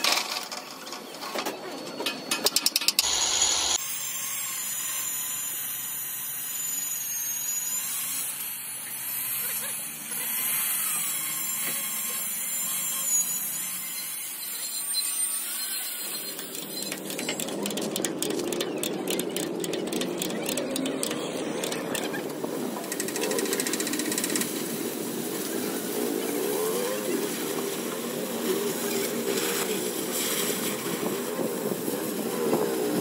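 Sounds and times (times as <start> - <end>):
fast mechanical rattle: 16.5 - 22.2, 22.8 - 24.5.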